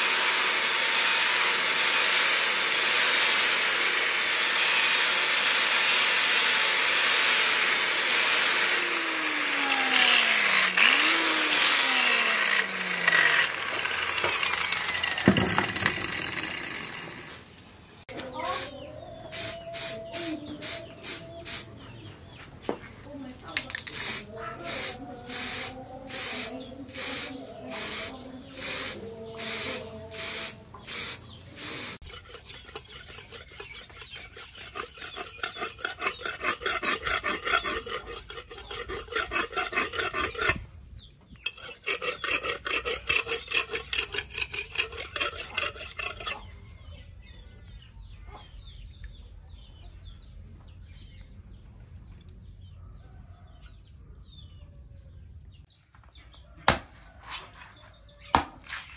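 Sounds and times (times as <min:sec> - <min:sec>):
aerosol spray can hissing: 0:19.3 - 0:21.7, 0:23.8 - 0:32.0
knife sharpened on wet stone: 0:32.0 - 0:40.6, 0:41.5 - 0:46.5.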